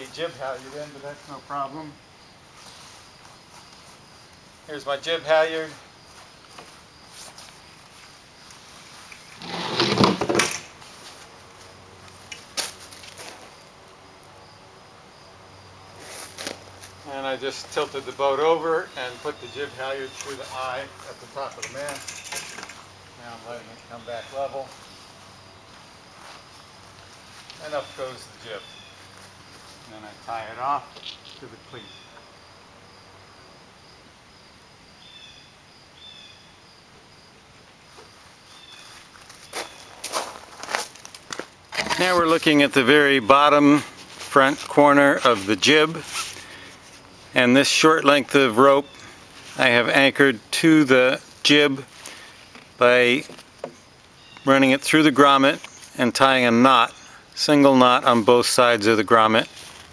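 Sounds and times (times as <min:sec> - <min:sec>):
faint high insect trill: 0:00.0 - 0:09.7, 0:10.4 - 0:59.9
sail rustling: 0:43.3 - 0:47.4.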